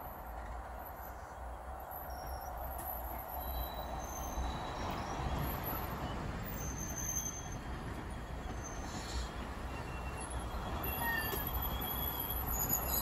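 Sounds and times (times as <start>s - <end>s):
train wheels rumbling on rails: 0.0s - 13.0s
faint wheel squeals: 3.4s - 13.0s.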